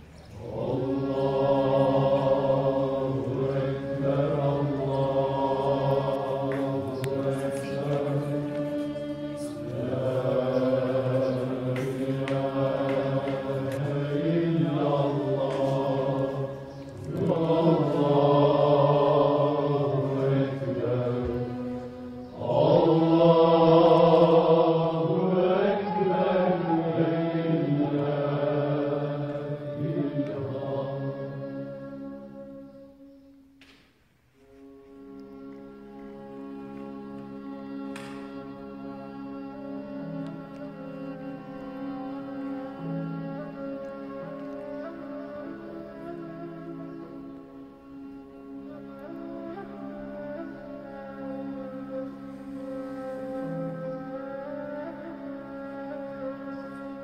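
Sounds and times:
man chanting: 22.4 - 31.7.

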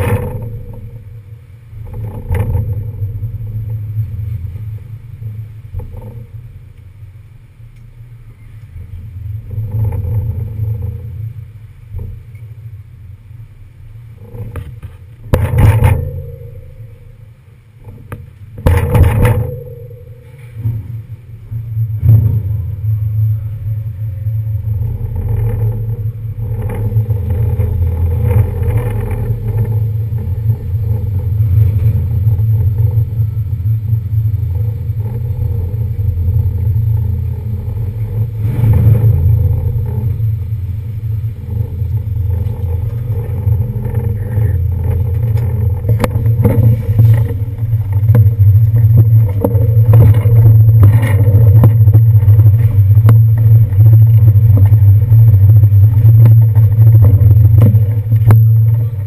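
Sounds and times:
clatter and knocks: 0.0 - 1.0, 1.8 - 4.4, 14.2 - 17.0, 17.8 - 21.0, 24.7 - 33.3, 34.3 - 40.5, 41.4 - 59.0
ship engines rumbling: 0.0 - 59.0.

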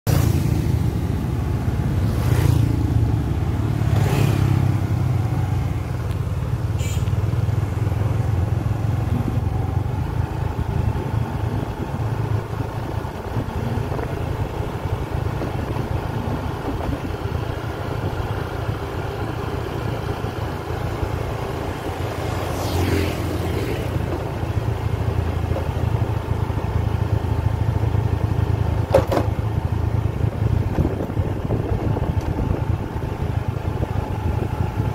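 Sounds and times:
motorcycle engine rumble: 0.1 - 34.9.

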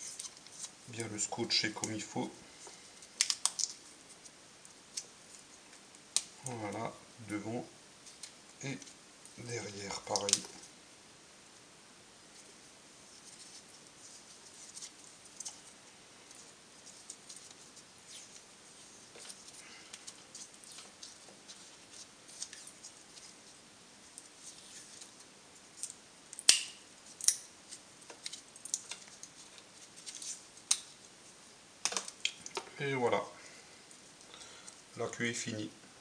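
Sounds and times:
tape crackling: 0.0 - 6.8, 8.0 - 10.7, 13.2 - 31.2, 31.8 - 32.8
tape snaps: 3.2 - 3.8, 10.1 - 10.6, 25.8 - 27.4.

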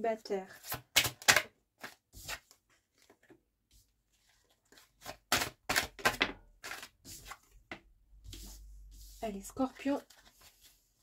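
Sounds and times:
cards being shuffled: 0.6 - 3.3.

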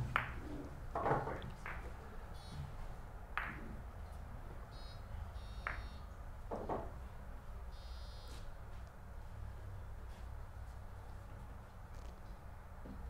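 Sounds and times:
billiard balls knocking: 0.0 - 2.0, 3.4 - 3.8.

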